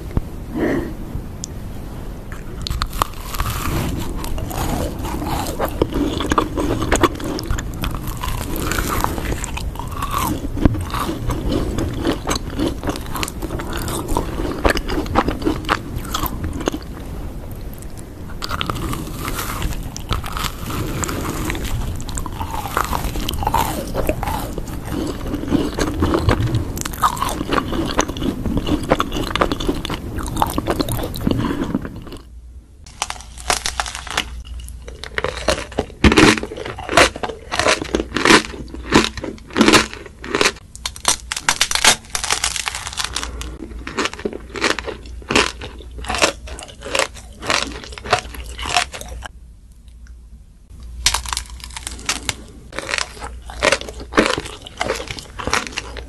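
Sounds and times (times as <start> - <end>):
chewing: 2.3 - 32.3, 32.9 - 49.3, 51.1 - 56.0
sharp crunches: 18.4 - 29.6.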